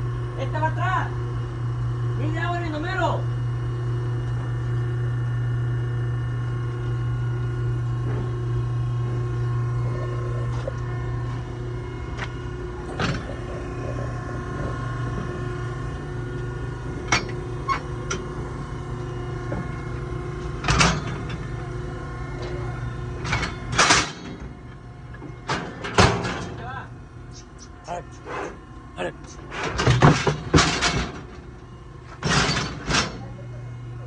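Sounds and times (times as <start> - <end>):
steady low hum: 0.0 - 34.0
steel gates clanking and rattling: 17.0 - 18.3, 20.6 - 21.6, 22.3 - 24.5, 25.4 - 26.7, 29.6 - 31.4, 32.2 - 33.3.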